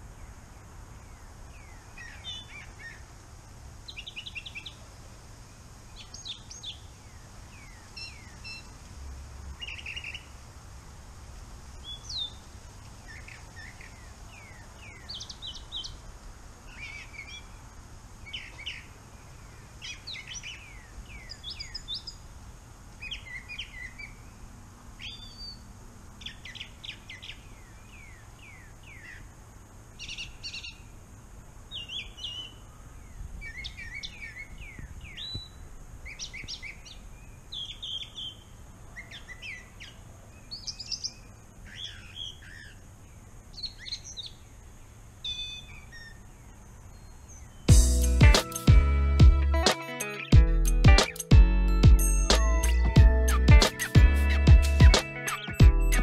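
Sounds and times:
songbird singing: 0.0 - 56.0.

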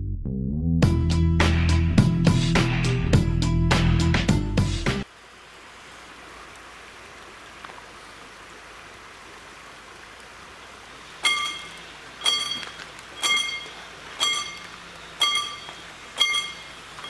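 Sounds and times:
level-crossing warning bell: 11.2 - 17.0.

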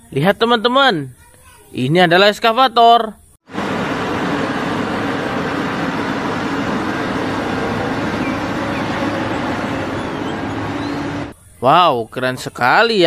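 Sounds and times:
excavator diesel engine rumbling: 3.5 - 11.3.

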